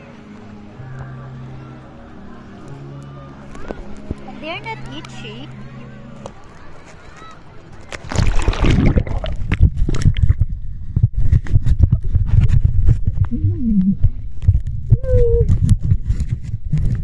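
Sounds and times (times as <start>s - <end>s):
muffled underwater rumble: 8.0s - 17.0s.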